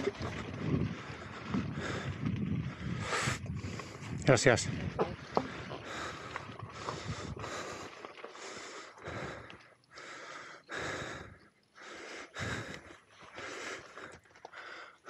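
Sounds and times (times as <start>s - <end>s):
heavy breathing: 5.3s - 15.0s.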